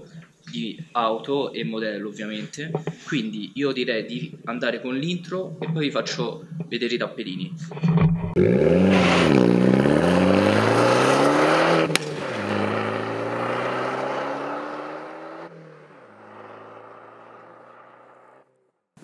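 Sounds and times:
car engine accelerating: 8.3 - 18.6.

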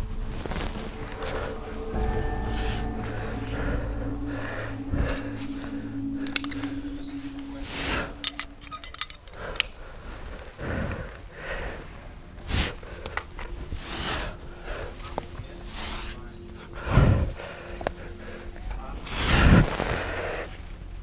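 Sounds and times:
sharp clicks: 6.2 - 7.6.

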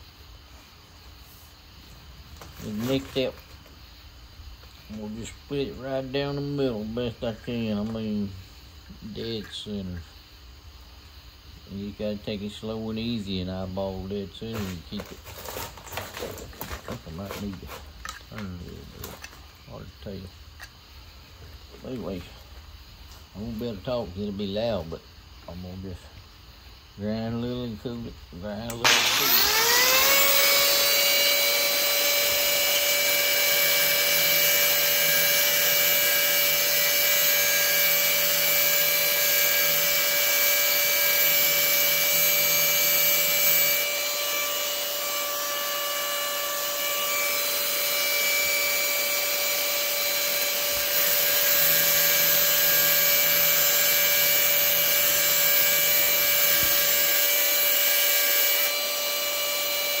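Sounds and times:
angle grinder cutting steel: 28.7 - 60.0.

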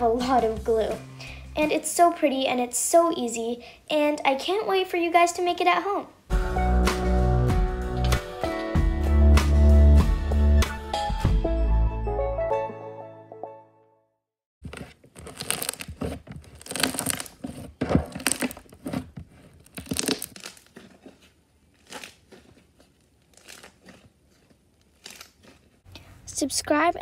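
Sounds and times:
background music: 0.0 - 1.8, 6.3 - 14.0
slime squelching and crackling: 14.8 - 25.9.

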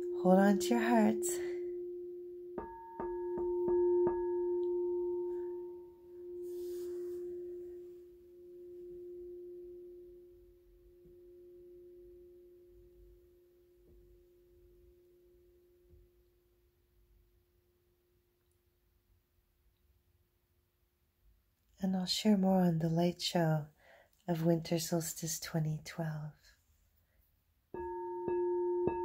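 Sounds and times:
singing bowl ringing: 0.0 - 15.9, 27.8 - 29.0.

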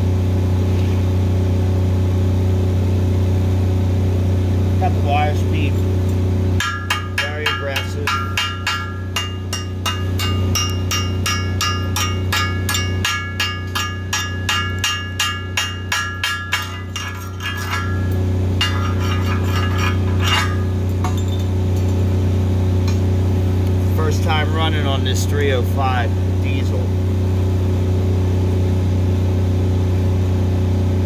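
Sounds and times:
welder engine humming: 0.0 - 30.9
chipping hammer striking metal: 6.6 - 22.0.

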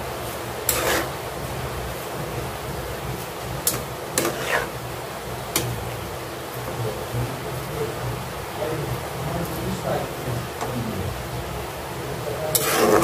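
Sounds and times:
steady hiss: 0.0 - 13.0
spoon scraping pan: 0.6 - 1.2, 3.6 - 4.8, 12.5 - 13.0.

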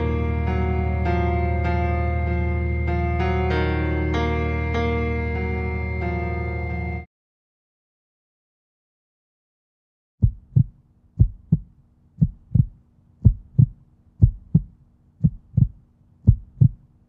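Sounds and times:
heartbeat thumps: 10.2 - 16.8
faint steady hum: 10.2 - 17.0.

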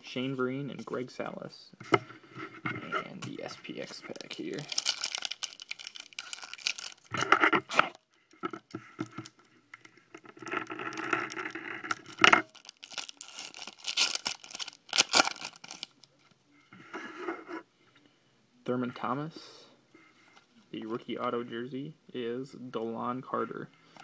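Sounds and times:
foil wrapper crinkling and tearing: 4.1 - 7.3, 10.4 - 16.1.

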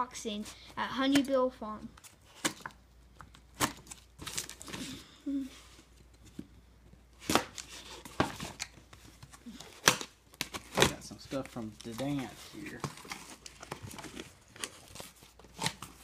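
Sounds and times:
packing tape being cut and torn: 11.9 - 16.0.

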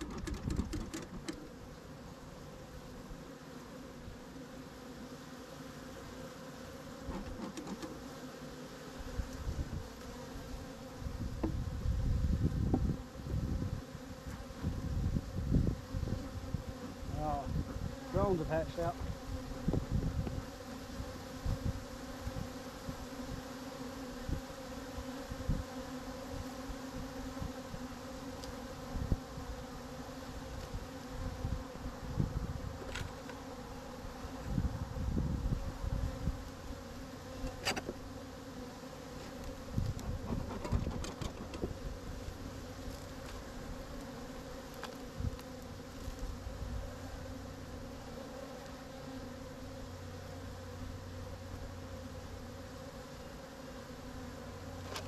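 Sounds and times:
sharp clicks: 0.0 - 1.4
bees buzzing: 0.0 - 55.0.

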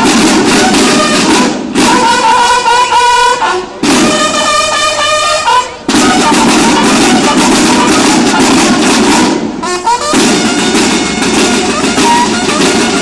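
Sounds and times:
snare drums playing cadence: 0.0 - 3.0, 3.8 - 5.2, 5.9 - 13.0
bugles sounding held chords: 0.0 - 13.0.

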